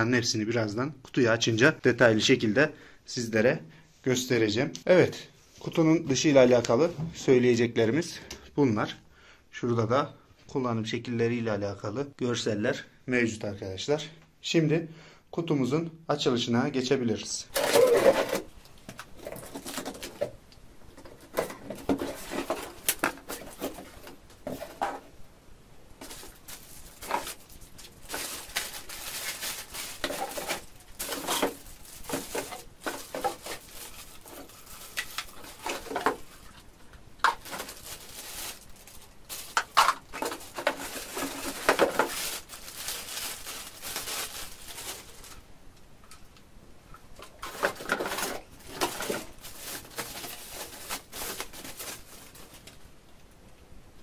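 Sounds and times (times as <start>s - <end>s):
plastic bags crinkling: 17.5s - 25.1s, 26.0s - 45.5s, 47.2s - 52.9s.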